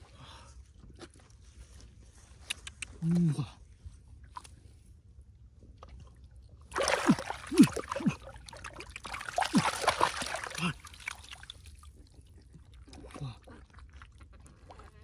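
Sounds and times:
water splashing and sloshing: 4.2s - 15.0s.

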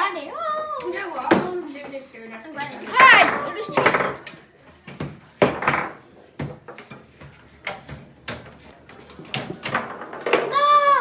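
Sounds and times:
table football knocks and clacks: 2.9s - 10.6s.

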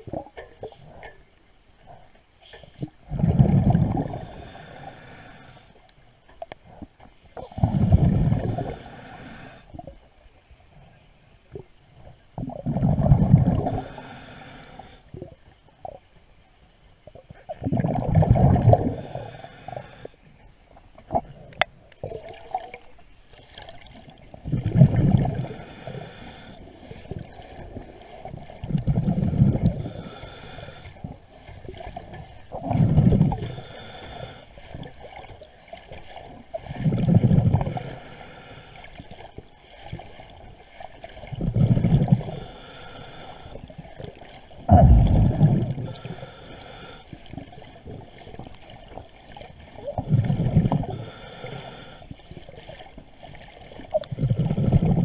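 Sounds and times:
exhaled bubbles underwater: 3.0s - 5.0s, 7.4s - 10.0s, 12.4s - 14.1s, 17.1s - 19.5s, 23.6s - 38.0s, 39.8s - 42.6s, 43.6s - 55.0s
regulator inhale hissing: 4.2s - 5.8s, 8.5s - 9.7s, 13.6s - 15.1s, 18.6s - 20.2s, 25.3s - 27.6s, 29.2s - 31.6s, 33.3s - 34.7s, 37.6s - 39.0s, 42.2s - 43.7s, 45.1s - 47.4s, 50.8s - 52.2s.

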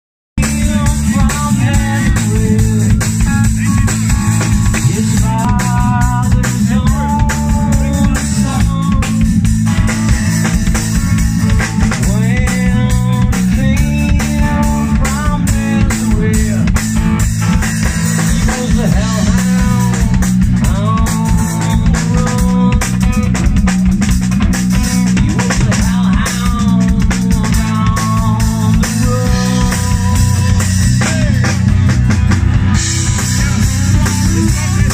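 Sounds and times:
man singing lead vocal: 0.4s - 11.0s, 11.7s - 32.1s, 32.7s - 34.9s
drum kit: 0.4s - 34.9s
electric bass: 0.4s - 34.9s
overdriven electric guitar: 0.4s - 34.9s.

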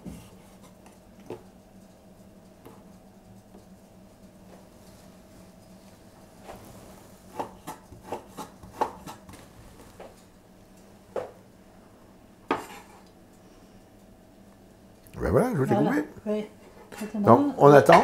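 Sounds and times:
cleaver chopping on wooden board: 7.3s - 9.2s.

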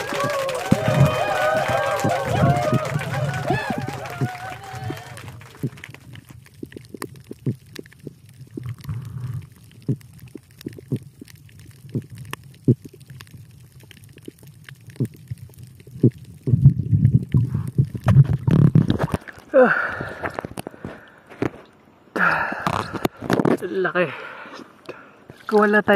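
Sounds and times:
bubbly rumble of moving water: 0.0s - 20.9s
sharp underwater clicks and knocks: 3.7s - 19.5s, 20.2s - 21.8s, 22.6s - 23.6s.

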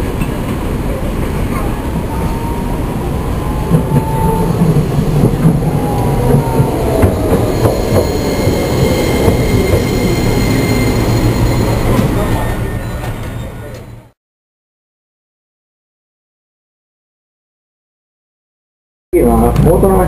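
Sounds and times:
tram wheels rumbling on rails: 0.0s - 14.2s.

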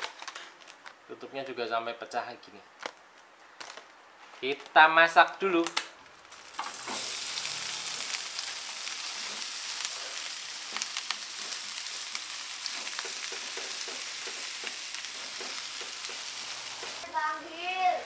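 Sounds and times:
food sizzling in hot oil: 6.3s - 18.0s.

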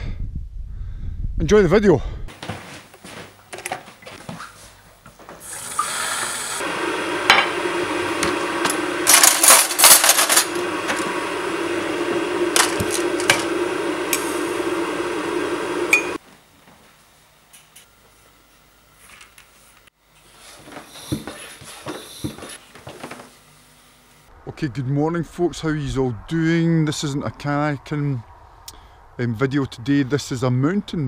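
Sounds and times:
tap water running into kettle: 5.4s - 8.9s.

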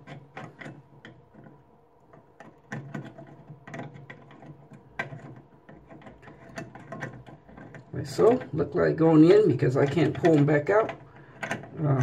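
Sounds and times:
metal screw clicks and scrapes: 0.0s - 8.6s, 9.8s - 12.0s
low steady hum: 0.0s - 12.0s.

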